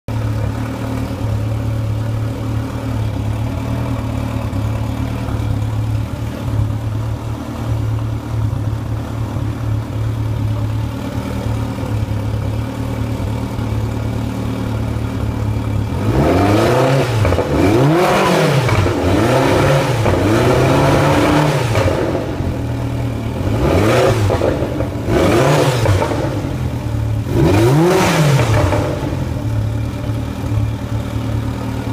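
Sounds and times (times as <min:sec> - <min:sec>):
outboard engine idling and revving: 0:00.1 - 0:31.9.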